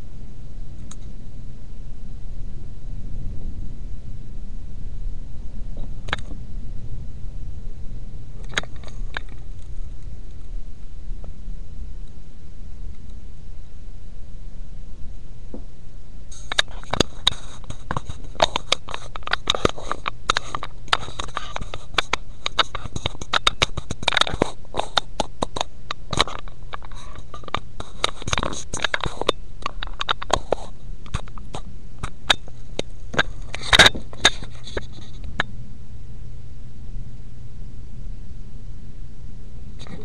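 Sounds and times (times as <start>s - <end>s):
steady low hum: 0.0s - 40.0s
microphone handling clicks and knocks: 5.6s - 7.0s, 8.4s - 10.6s, 16.3s - 35.5s.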